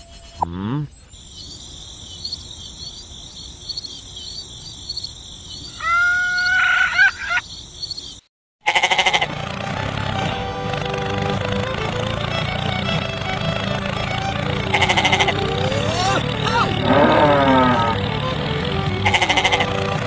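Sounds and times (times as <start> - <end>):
insect chirring: 1.0 - 8.3
animal call: 5.6 - 7.5, 8.6 - 9.4, 13.5 - 20.0.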